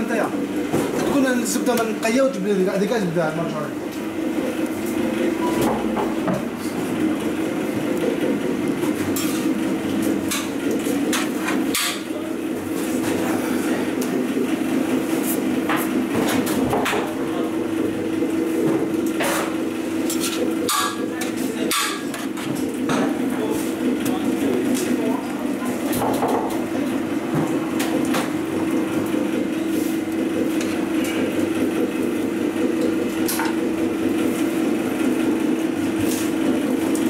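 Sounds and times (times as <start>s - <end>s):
steady machine hum: 0.0s - 37.0s.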